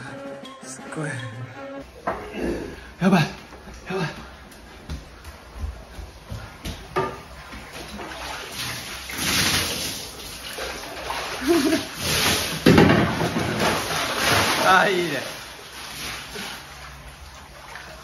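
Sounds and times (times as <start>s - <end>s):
water splashing onto wooden deck: 6.2s - 18.0s.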